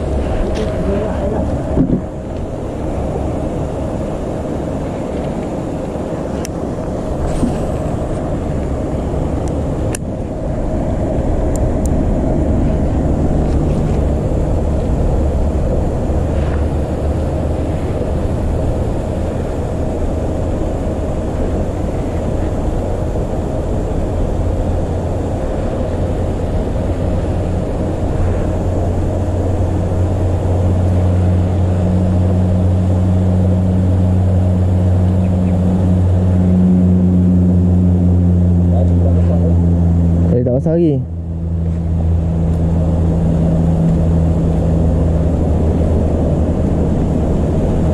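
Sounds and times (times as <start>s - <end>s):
low motor drone: 0.0s - 47.9s.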